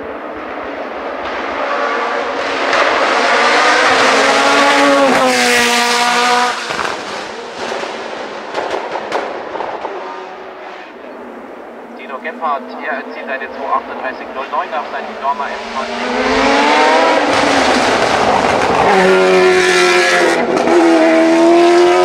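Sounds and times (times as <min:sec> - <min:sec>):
race car accelerating past: 0:00.0 - 0:11.0, 0:12.6 - 0:22.0
engine exhaust cracks: 0:06.6 - 0:09.9.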